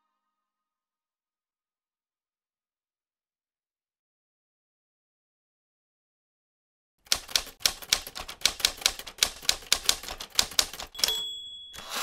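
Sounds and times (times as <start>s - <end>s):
typewriter carriage return rattle: 7.1s - 12.0s
typewriter keys clacking: 7.1s - 12.0s
typewriter bell ding: 10.1s - 12.0s.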